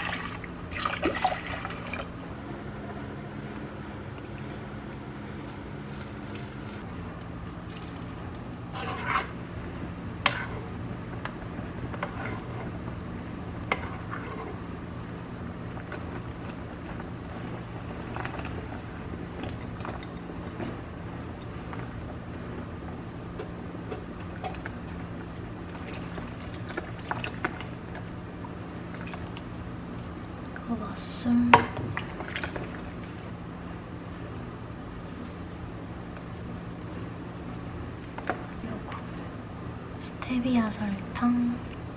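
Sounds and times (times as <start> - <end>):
liquid sounds: 0.0 - 2.3, 16.0 - 30.5, 31.7 - 33.3
steady low hum: 0.0 - 41.9.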